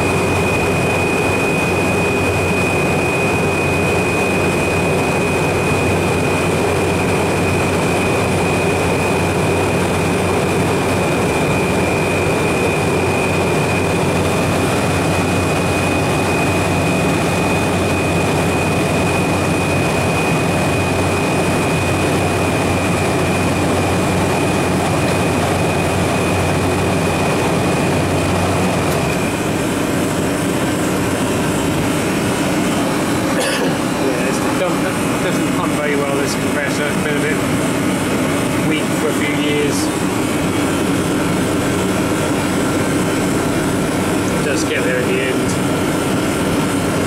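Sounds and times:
compressor and fan humming: 0:00.0 - 0:47.0.

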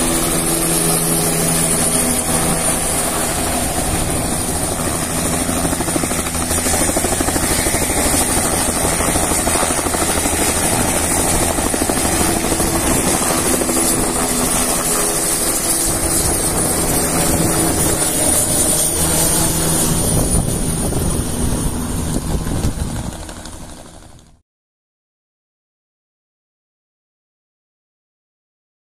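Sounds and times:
main rotor beating: 0:00.0 - 0:24.0
helicopter engine whine: 0:00.0 - 0:24.4.

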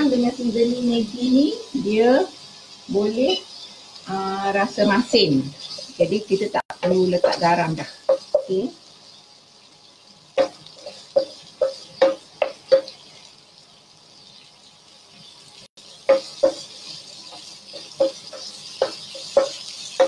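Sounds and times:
food hissing in a pan: 0:00.0 - 0:20.0
utensil tapping a pan: 0:06.7 - 0:08.7, 0:10.4 - 0:13.0, 0:16.0 - 0:20.0.

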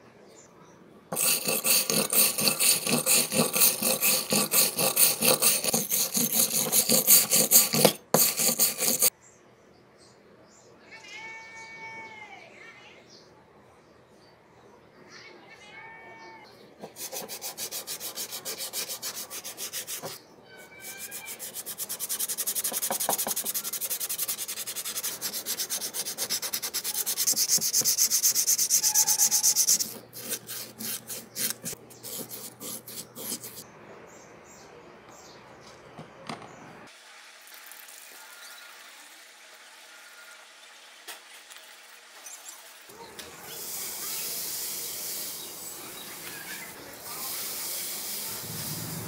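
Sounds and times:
sandpaper rubbing on metal: 0:01.2 - 0:09.1, 0:16.8 - 0:20.2, 0:20.8 - 0:33.6
faint hiss: 0:43.4 - 0:49.0.

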